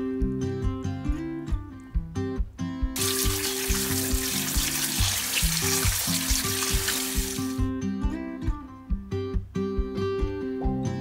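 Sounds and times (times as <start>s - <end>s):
acoustic guitar music: 0.1s - 11.0s
tap water running into strainer: 3.0s - 7.6s.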